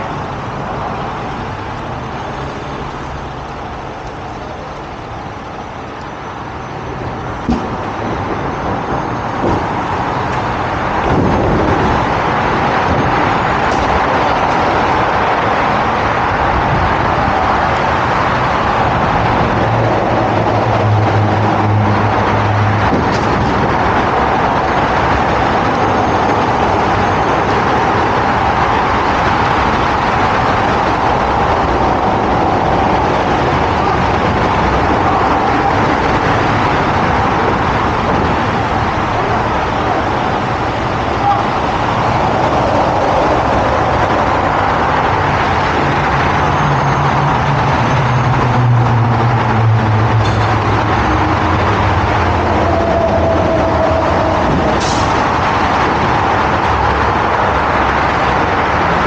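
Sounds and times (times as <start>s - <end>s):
rushing noise: 0.0s - 59.0s
truck engine running: 0.0s - 59.0s.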